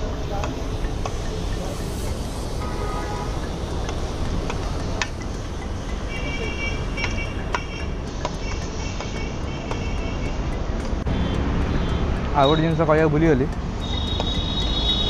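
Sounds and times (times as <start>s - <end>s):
roadside traffic rumble: 0.0s - 15.0s.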